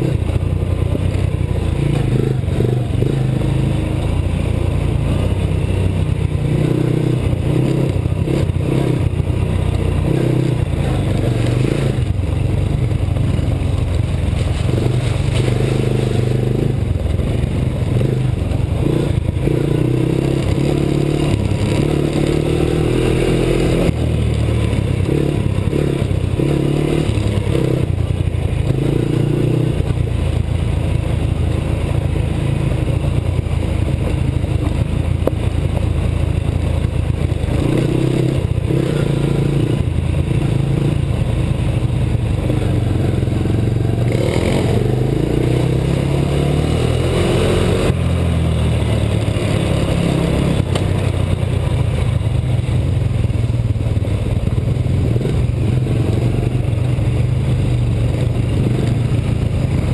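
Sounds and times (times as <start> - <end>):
quad engine revving: 0.0 - 30.2, 36.8 - 52.2.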